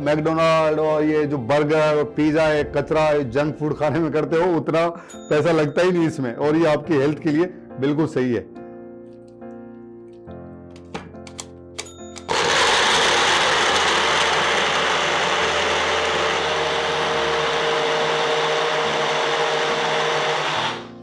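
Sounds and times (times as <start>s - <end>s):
quiet background music: 0.0s - 12.3s
electric blender running: 12.2s - 21.0s.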